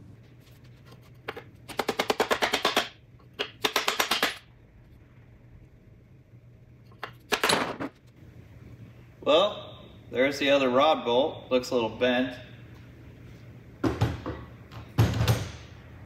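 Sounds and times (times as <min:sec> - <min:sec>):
hammer beating on wood: 0:03.6 - 0:04.4.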